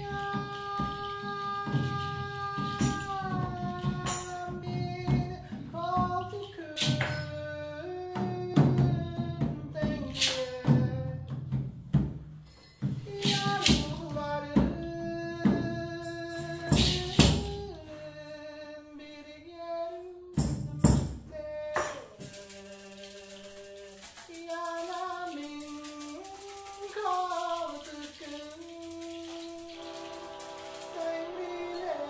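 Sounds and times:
voice singing long held notes: 0.0s - 5.3s, 22.6s - 32.0s
fine rattling hiss: 21.8s - 32.0s
loud percussive strikes: 29.7s - 32.0s.

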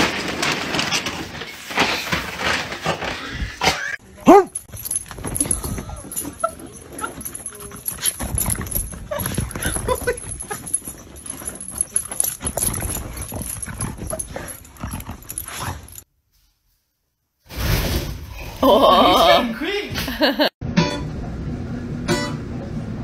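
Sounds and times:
dog scrambling and scrabbling: 0.0s - 3.8s, 4.5s - 16.0s.

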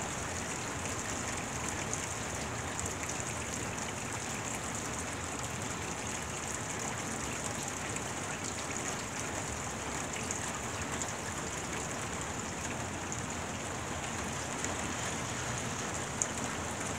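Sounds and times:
rain on wet pavement: 11.6s - 16.9s.

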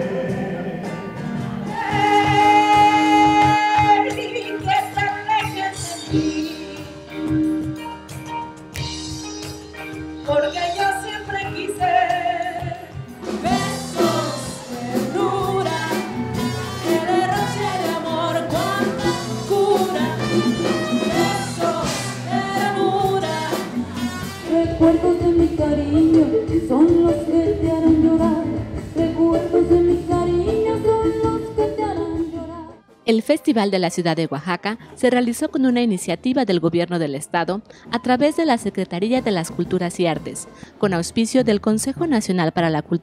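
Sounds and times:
women singing with band: 1.7s - 6.5s, 10.4s - 32.8s.

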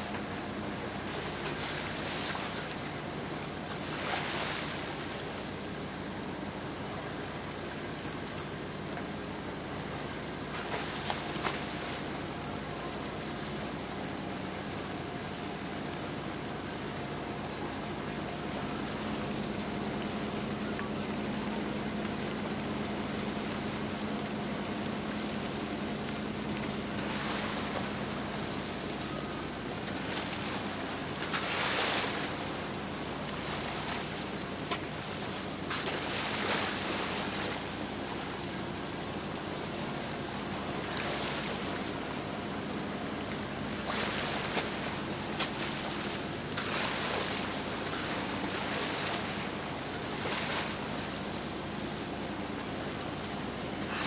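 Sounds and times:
boat engine hum: 0.0s - 54.0s
water rushing along hull: 0.0s - 54.0s.

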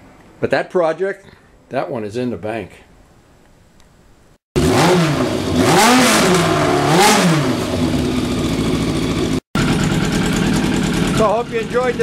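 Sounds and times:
motorcycle engine revving and idling: 4.6s - 12.0s.

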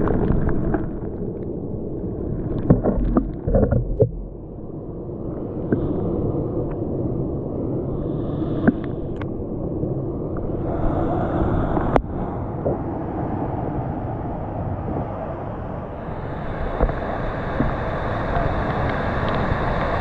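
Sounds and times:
waterfall roaring: 16.6s - 20.0s.

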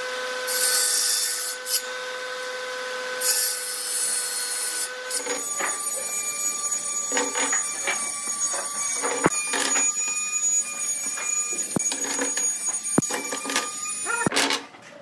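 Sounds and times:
steady high whine: 5.2s - 14.3s.

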